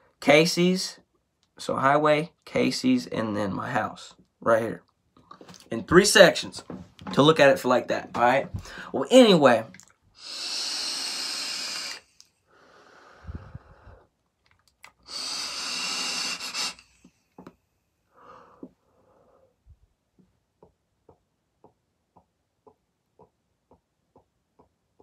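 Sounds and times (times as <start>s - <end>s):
person exhaling: 8.6s - 9.0s, 10.2s - 14.1s, 15.0s - 17.1s, 18.1s - 19.6s
hissing vape draws: 10.2s - 14.0s, 14.8s - 17.2s.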